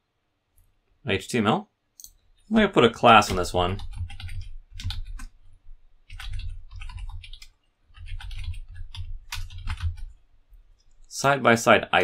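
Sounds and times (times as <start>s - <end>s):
typing on computer keyboard: 3.1s - 5.4s, 6.0s - 10.2s.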